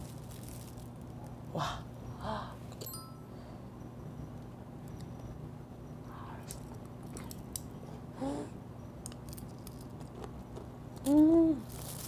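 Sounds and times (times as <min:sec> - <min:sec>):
steady low hum: 0:00.0 - 0:12.0
person humming briefly: 0:08.2 - 0:08.6, 0:11.0 - 0:11.6.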